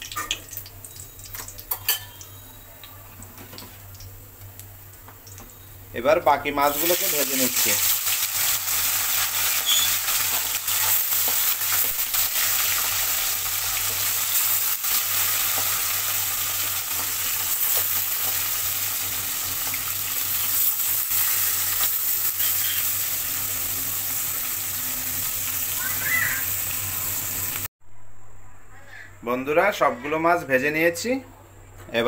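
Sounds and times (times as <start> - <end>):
fish sizzling in oil: 6.7 - 27.7.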